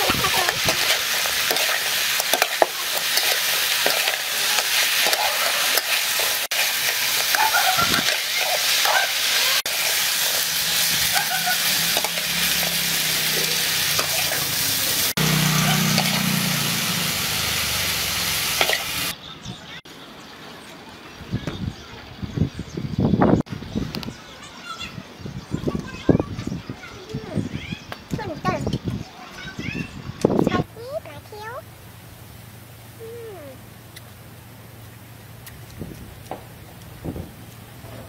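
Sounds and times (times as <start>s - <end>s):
food sizzling in a wok: 0.0s - 19.2s
metal spatula scraping a pan: 0.3s - 14.6s.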